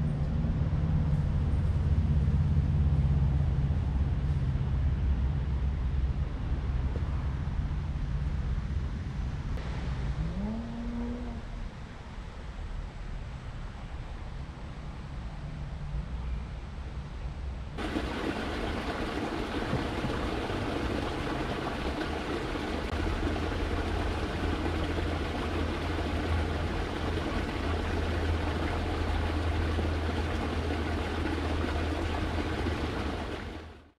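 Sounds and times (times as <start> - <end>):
creek water rushing: 17.8 - 33.9.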